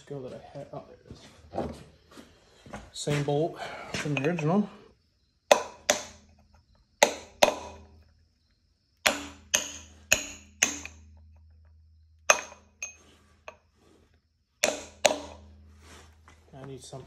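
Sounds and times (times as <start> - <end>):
hammer striking metal: 5.5 - 6.2, 7.0 - 7.9, 9.0 - 11.2, 12.3 - 13.6, 14.6 - 15.6.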